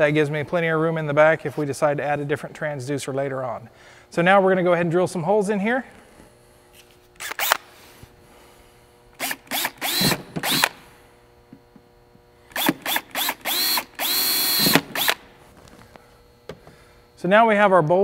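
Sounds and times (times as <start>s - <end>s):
cordless drill whining: 7.2s - 7.7s, 9.1s - 10.8s, 12.5s - 16.8s.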